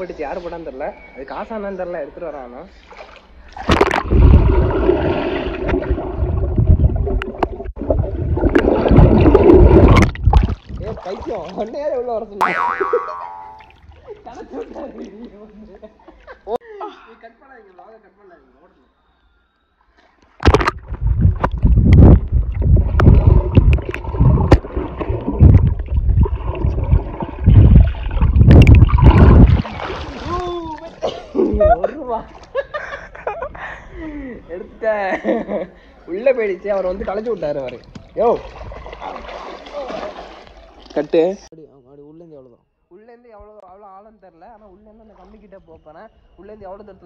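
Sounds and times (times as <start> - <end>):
underwater water churning and bubbles: 3.7 - 11.2, 20.4 - 30.3.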